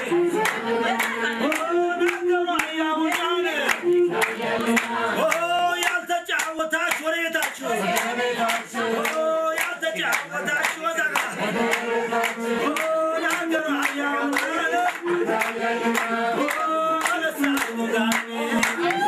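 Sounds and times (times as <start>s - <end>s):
group singing: 0.0s - 19.0s
hands clapping to a beat: 0.0s - 19.0s.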